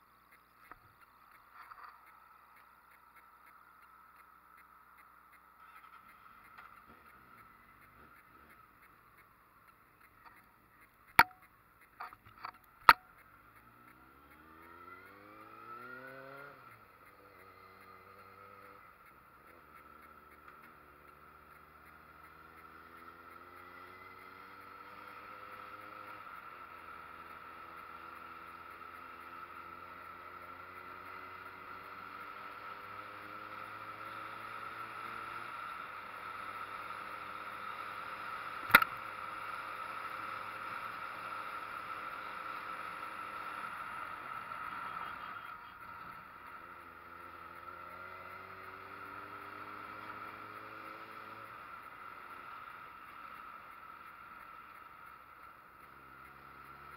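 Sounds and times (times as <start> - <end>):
motorcycle engine revving: 0.0 - 56.9
wind and road noise: 0.0 - 56.9
sharp click: 0.3 - 24.2, 38.5 - 39.2.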